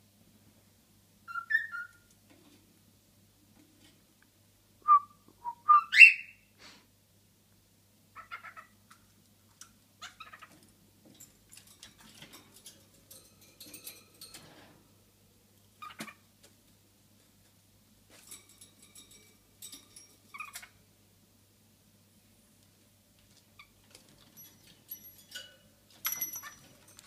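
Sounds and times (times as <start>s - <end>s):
cockatiel whistling and chirping: 1.3s - 2.1s, 5.6s - 6.4s.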